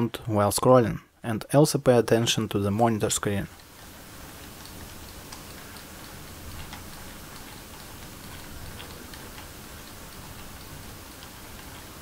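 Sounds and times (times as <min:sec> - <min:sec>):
faint steady hiss: 0:00.0 - 0:12.0
mouse scroll wheel ticking: 0:03.5 - 0:12.0.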